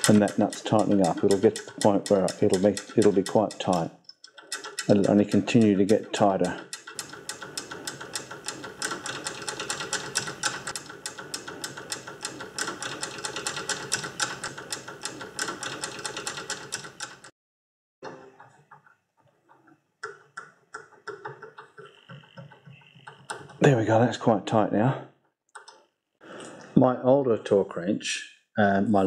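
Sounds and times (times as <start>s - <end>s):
nut clicking on bolt threads: 0.0s - 17.3s.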